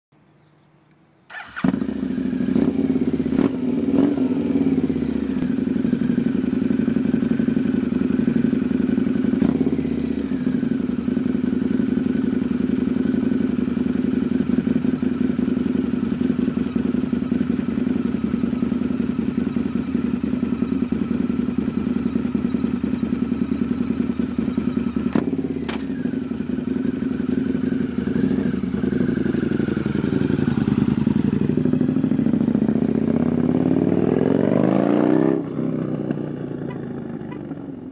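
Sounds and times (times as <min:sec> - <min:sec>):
motorcycle engine revving and idling: 0:01.3 - 0:37.9.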